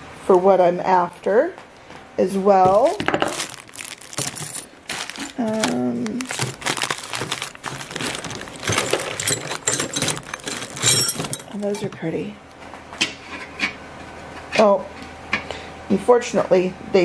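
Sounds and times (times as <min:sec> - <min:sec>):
plastic bags crinkling: 0:02.7 - 0:11.9
metal drawer pulls clinking: 0:07.2 - 0:11.9.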